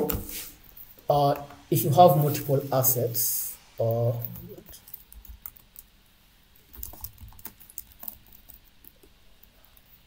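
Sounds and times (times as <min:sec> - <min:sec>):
typing on computer keyboard: 0:04.7 - 0:05.9, 0:06.7 - 0:09.9.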